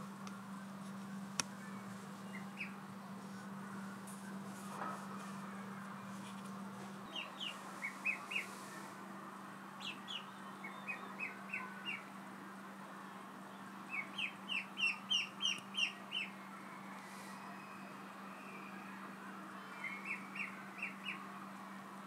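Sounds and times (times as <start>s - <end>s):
steady low hum: 0.0s - 22.0s
ducklings peeping: 1.5s - 2.8s, 7.0s - 8.9s, 9.8s - 12.1s, 13.9s - 16.4s, 19.8s - 21.2s.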